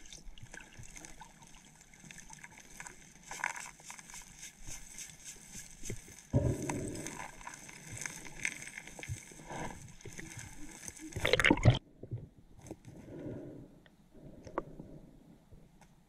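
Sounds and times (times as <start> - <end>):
underwater breath bubbling: 6.3 - 8.4.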